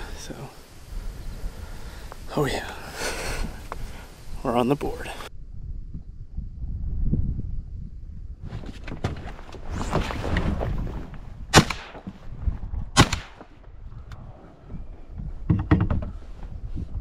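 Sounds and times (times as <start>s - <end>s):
shotgun shots with echo: 11.5s - 12.0s, 13.0s - 13.5s.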